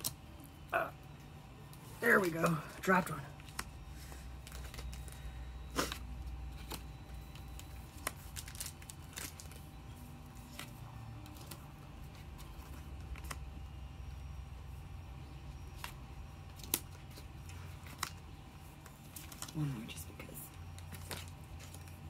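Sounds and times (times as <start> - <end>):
steady low hum: 0.0 - 22.0
cards clicking and rustling: 3.3 - 13.6, 15.6 - 22.0.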